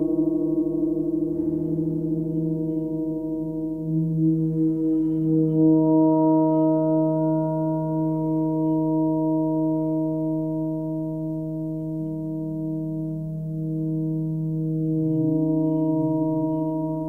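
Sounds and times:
gong struck and ringing: 0:00.0 - 0:08.4.

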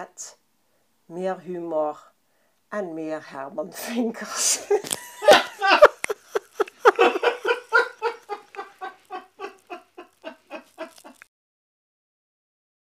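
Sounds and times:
woman laughing: 0:04.4 - 0:11.3.

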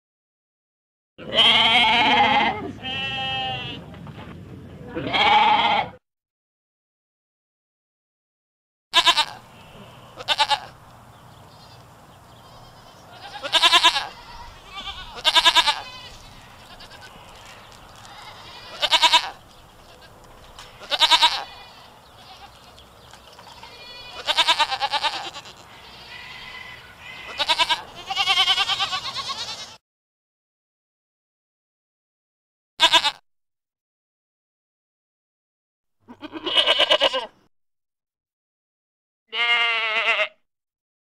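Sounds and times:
goats bleating: 0:01.2 - 0:03.8, 0:04.9 - 0:06.0, 0:09.0 - 0:10.8, 0:11.5 - 0:29.8, 0:32.8 - 0:33.2, 0:36.1 - 0:37.4, 0:39.3 - 0:40.4.

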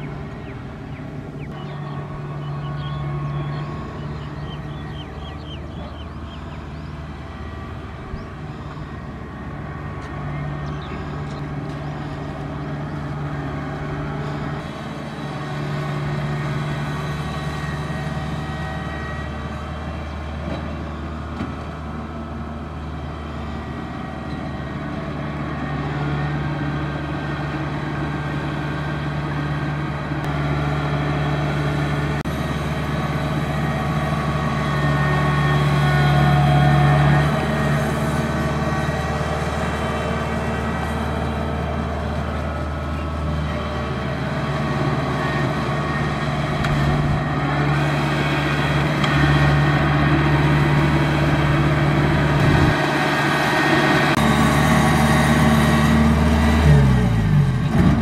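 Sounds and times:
combine harvester diesel engine: 0:00.0 - 0:58.0.

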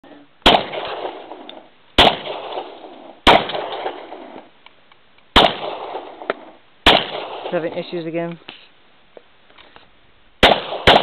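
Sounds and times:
pistol shots: 0:00.4 - 0:04.5, 0:05.3 - 0:07.8, 0:10.4 - 0:11.0.

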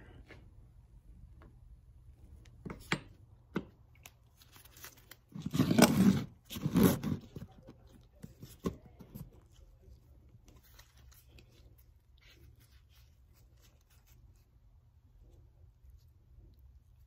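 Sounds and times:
gloved hands handling noise: 0:02.4 - 0:14.6.

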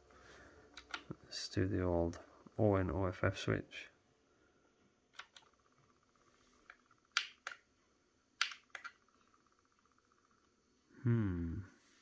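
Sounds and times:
faint electrical buzz: 0:00.0 - 0:12.0
sharp mechanical clicks: 0:00.7 - 0:01.1, 0:05.1 - 0:05.7, 0:06.6 - 0:07.7, 0:08.4 - 0:09.4.

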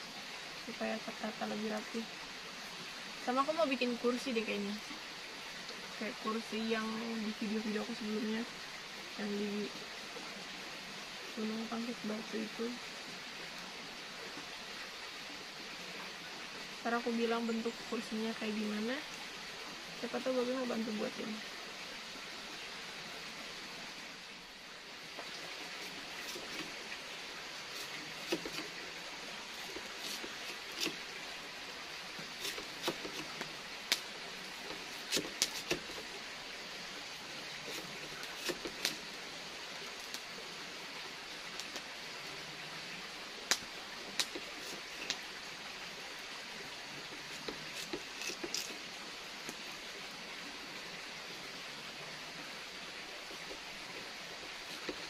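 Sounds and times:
background hiss: 0:00.0 - 0:55.0
knife slicing potato on wooden board: 0:27.8 - 0:28.7, 0:32.4 - 0:33.5, 0:34.7 - 0:36.0, 0:37.7 - 0:39.0.

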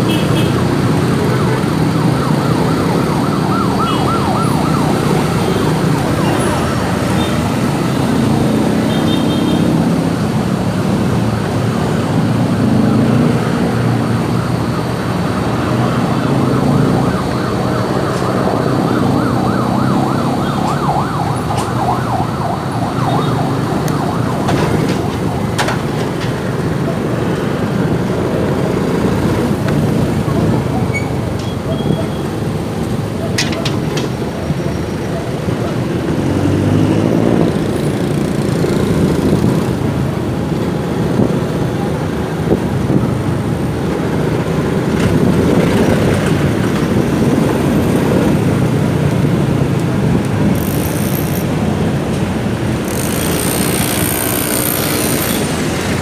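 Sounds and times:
hum of traffic engines: 0:00.0 - 0:56.0
warbling siren: 0:00.8 - 0:09.9, 0:12.6 - 0:27.6.

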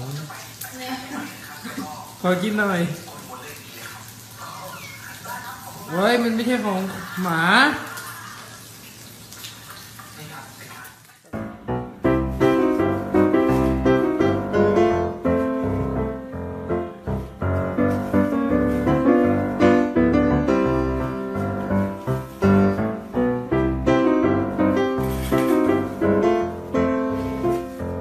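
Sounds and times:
lively piano music: 0:11.3 - 0:28.0.

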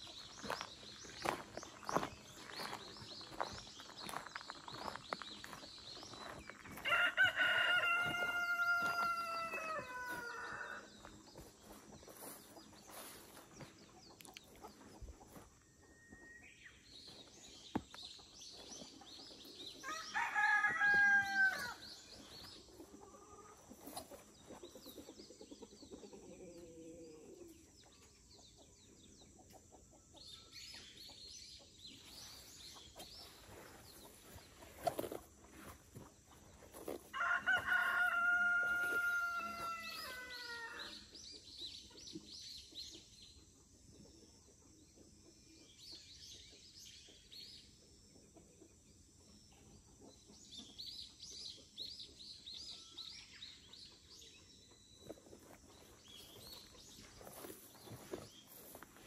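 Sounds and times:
small birds chirping faintly: 0:00.0 - 0:59.0
rooster crowing: 0:06.8 - 0:10.9, 0:19.8 - 0:21.8, 0:37.1 - 0:40.9.

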